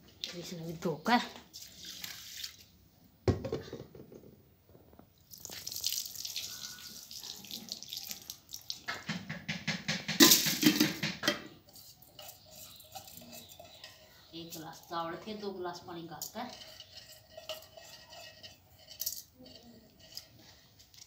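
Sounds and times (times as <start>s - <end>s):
water pouring and sloshing: 1.4s - 2.8s, 5.2s - 9.0s.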